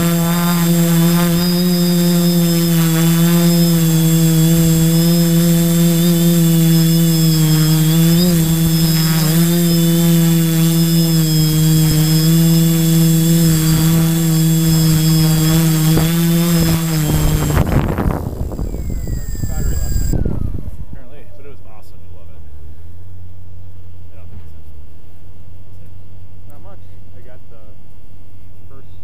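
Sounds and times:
drone motors and propellers: 0:00.0 - 0:21.2.

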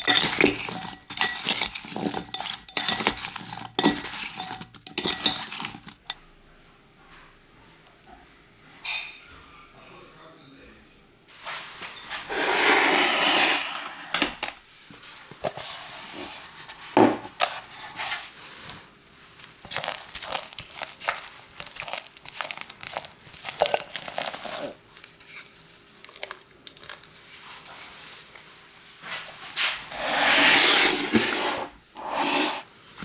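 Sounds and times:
spatula scraping batter from bowl: 0:00.0 - 0:06.1, 0:12.3 - 0:13.8
wooden utensils knocking on glass bowls: 0:00.0 - 0:06.2
papery crinkles: 0:18.5 - 0:28.0.

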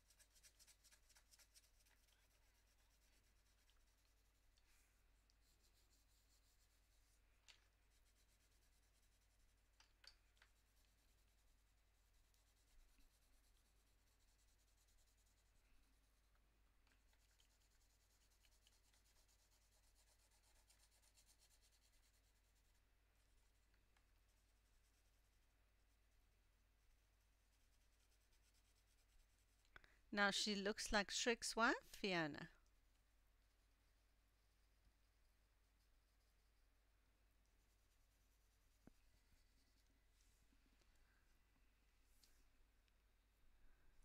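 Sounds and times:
coloured pencil scratching on paper: 0:00.0 - 0:09.8, 0:10.4 - 0:16.3, 0:17.0 - 0:29.6, 0:35.0 - 0:40.4.

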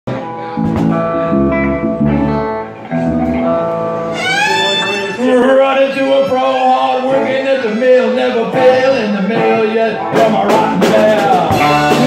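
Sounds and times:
rock and roll band: 0:00.1 - 0:12.0
guitar note sliding down: 0:00.2 - 0:05.5.

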